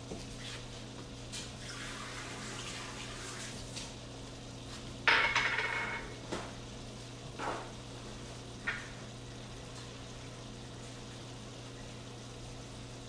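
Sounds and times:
kitchenware clattering: 0:05.1 - 0:06.2.

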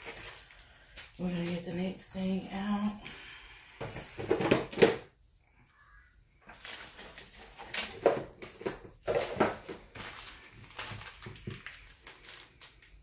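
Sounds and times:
plastic packaging crinkling: 0:00.0 - 0:03.0, 0:06.5 - 0:13.0.

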